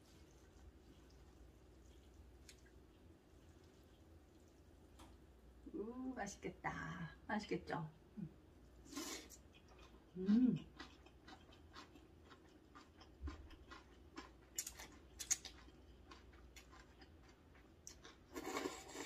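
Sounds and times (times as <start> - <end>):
wet chewing: 0.1 - 5.2, 8.9 - 19.0
person humming: 10.2 - 10.6
noodles being slurped: 18.3 - 19.0.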